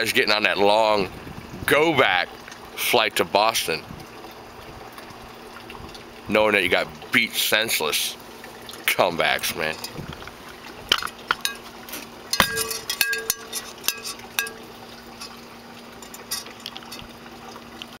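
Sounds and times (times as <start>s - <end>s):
faint steady hum: 0.0s - 18.0s
metallic clinks and knocks: 10.9s - 11.7s, 12.3s - 15.4s, 16.0s - 17.1s.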